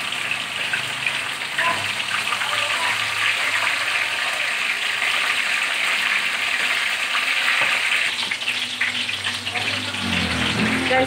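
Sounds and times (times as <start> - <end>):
fish sizzling in hot oil: 0.0 - 11.0.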